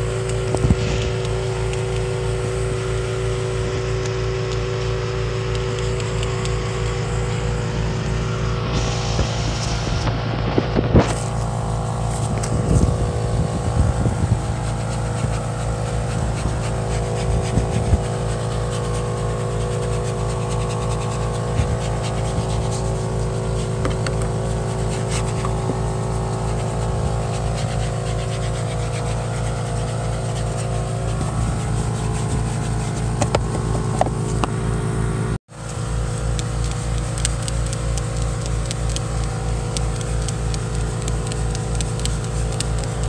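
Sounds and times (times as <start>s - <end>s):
engine running steadily: 0.0s - 43.0s
brush scrubbing door panel: 8.7s - 34.6s, 35.6s - 43.0s.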